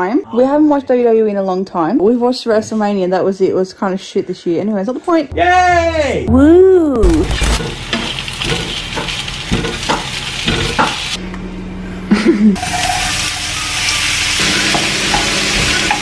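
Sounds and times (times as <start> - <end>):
food sizzling in a pan: 7.5 - 11.2, 12.6 - 16.0
kitchen clatter: 7.6 - 11.2.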